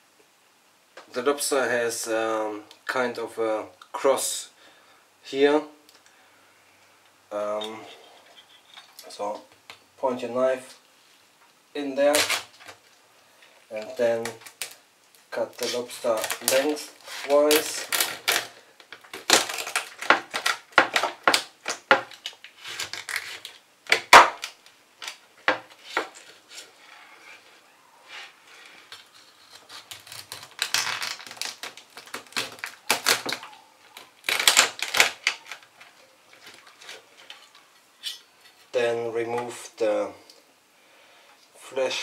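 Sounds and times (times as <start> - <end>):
lobster shell cracking: 17.5 - 25.2, 28.9 - 37.6.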